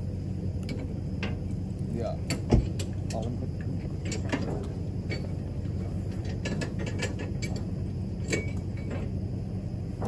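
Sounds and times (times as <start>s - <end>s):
low engine hum: 0.0s - 10.0s
metallic clicks and clanks: 2.2s - 5.3s, 6.1s - 9.1s.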